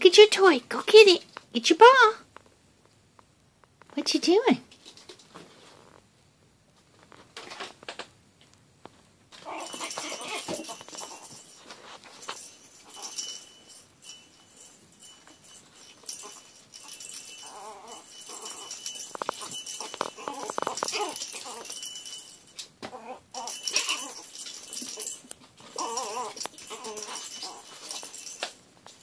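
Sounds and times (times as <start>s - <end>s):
puppy sounds: 9.4s - 13.8s, 15.5s - 28.6s
bell jingling in toy ball: 9.4s - 29.0s.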